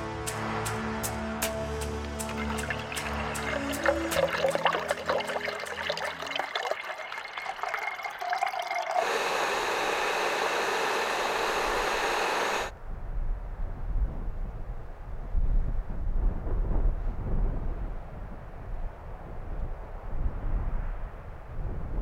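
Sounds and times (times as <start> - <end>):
water pouring into a cup: 2.0 - 12.2
steady hiss: 9.0 - 12.7
wind rumble on microphone: 12.7 - 22.0.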